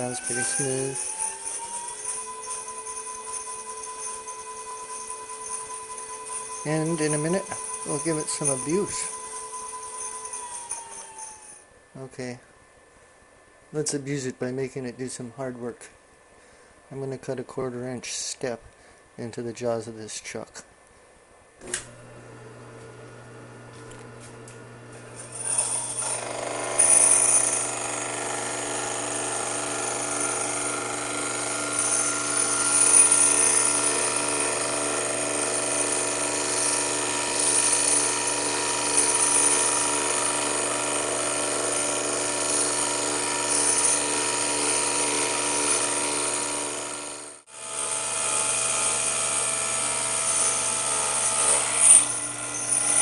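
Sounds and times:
lathe motor humming and whining: 0:21.9 - 0:53.0.

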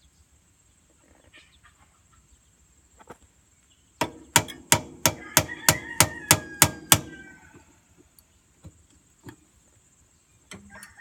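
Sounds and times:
hammer blows on metal: 0:04.0 - 0:07.4
distant rooster crowing: 0:04.7 - 0:08.0, 0:10.6 - 0:11.0.

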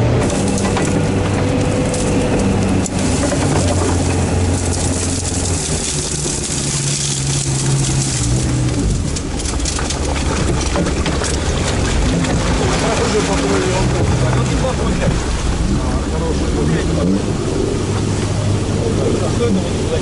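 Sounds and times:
diesel engine running: 0:00.0 - 0:20.0
reeds and ice brushing past: 0:00.2 - 0:16.0.

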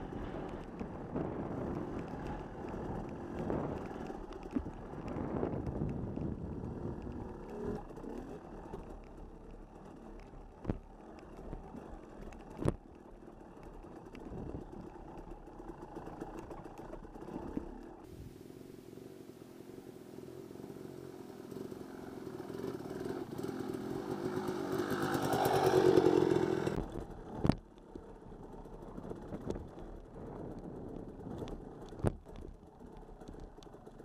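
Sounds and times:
vehicle rumbling over rough ground: 0:00.0 - 0:34.0.

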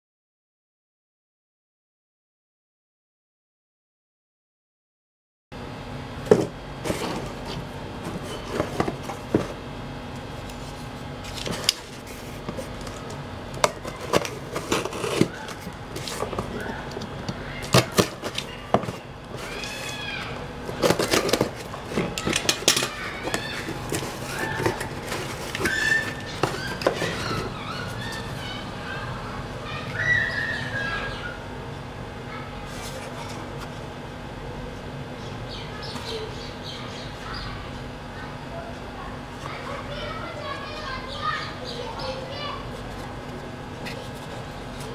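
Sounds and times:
cardboard rustling: 0:06.3 - 0:09.6, 0:10.5 - 0:28.5.

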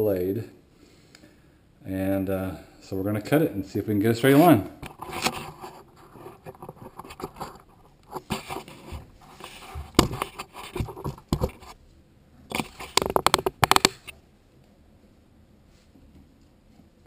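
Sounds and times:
quick clicks and knocks: 0:12.5 - 0:14.1.

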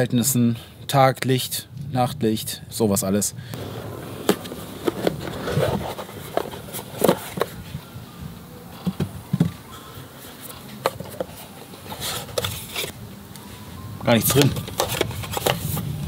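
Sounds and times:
cardboard lid sliding off: 0:03.6 - 0:07.6
packaging taps clicks and scrapes: 0:14.3 - 0:15.9.

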